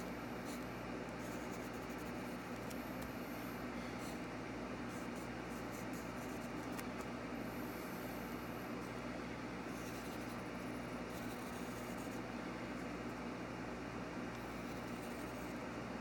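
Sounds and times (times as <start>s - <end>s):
pencil scratching on paper: 1.2s - 2.8s, 4.9s - 6.8s, 9.7s - 12.2s, 14.4s - 15.6s.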